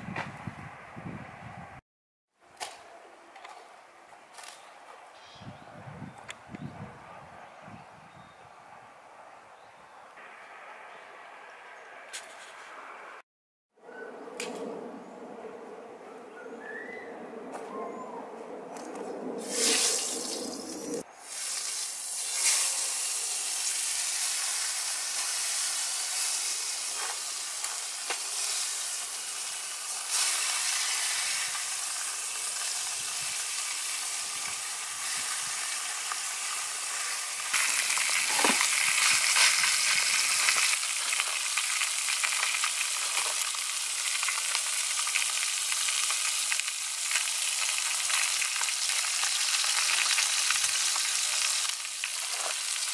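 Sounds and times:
fish sizzling in hot oil: 19.5 - 20.4, 21.2 - 52.9.

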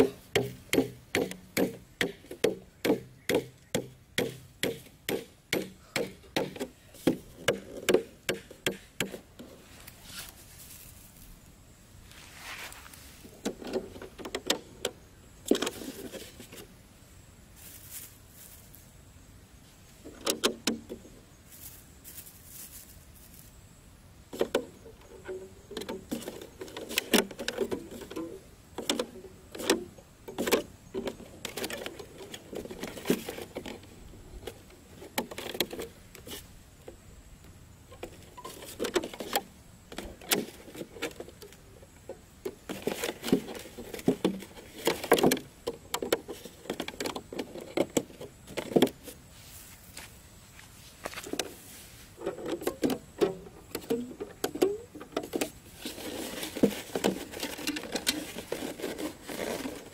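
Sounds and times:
plastic bottle crinkling and clicking: 52.2 - 59.9.

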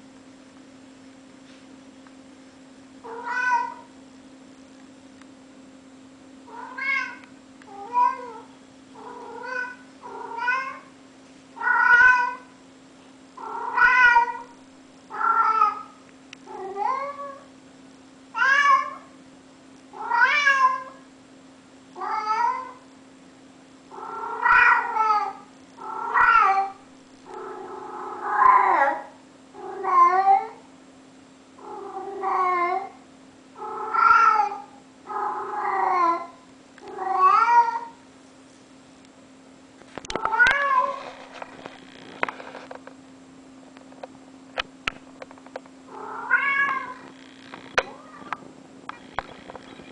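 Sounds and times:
cat meowing: 3.1 - 3.8, 6.6 - 7.2, 11.6 - 12.4, 13.6 - 14.5, 26.0 - 26.8, 33.8 - 34.6, 36.9 - 38.0, 46.0 - 47.1, 47.7 - 48.4.

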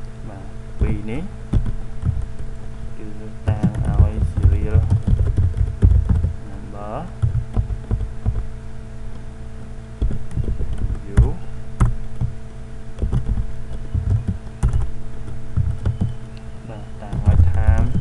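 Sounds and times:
steady electrical hum: 0.0 - 18.0
low thumping on microphone: 0.8 - 2.5, 3.4 - 6.4, 7.2 - 8.5, 10.0 - 12.4, 13.0 - 16.2
computer keyboard keystrokes: 3.5 - 6.3, 7.2 - 8.4, 10.0 - 12.3, 13.0 - 16.2.

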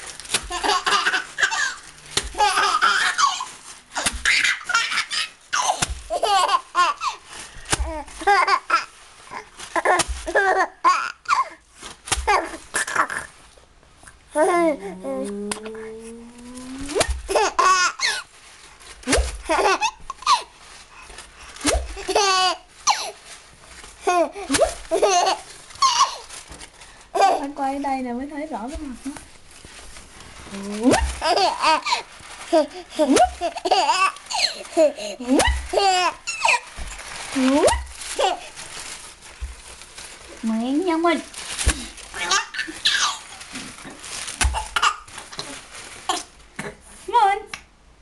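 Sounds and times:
paper crackling: 0.0 - 13.3, 15.5 - 46.6
baby laughing: 0.5 - 7.2, 16.9 - 18.3, 19.4 - 20.5, 21.7 - 23.2, 24.0 - 26.3, 30.9 - 36.7, 42.2 - 43.4
baby breathing: 34.3 - 35.3.

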